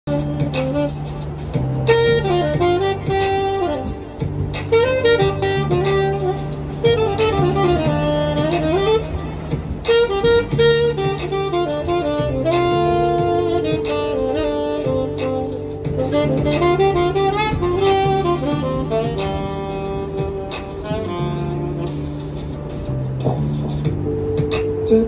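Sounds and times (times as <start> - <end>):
backing track with bass and beat: 0.0 - 25.0
saxophone melody: 0.0 - 25.0.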